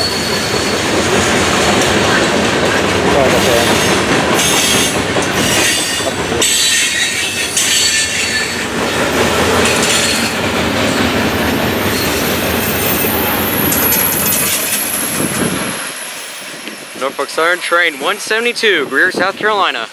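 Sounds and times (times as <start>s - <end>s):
high wheel squeal: 0.0s - 1.0s, 3.3s - 8.7s, 9.6s - 10.4s, 11.7s - 17.2s
freight train rolling past: 0.0s - 19.9s.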